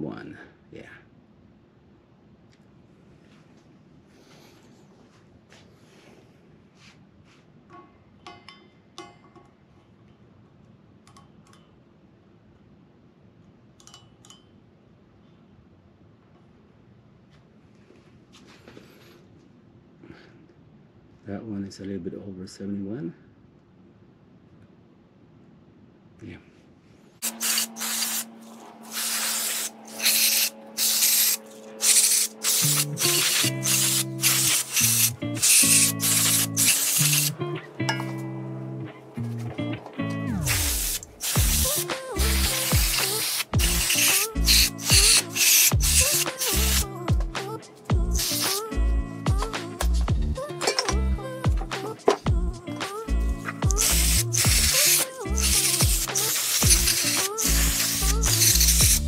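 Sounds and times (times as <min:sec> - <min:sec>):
aerosol spray hissing bursts: 0:27.2 - 0:37.4, 0:40.4 - 0:46.9, 0:48.2 - 0:48.7, 0:53.7 - 0:59.0
background music: 0:29.8 - 0:59.0.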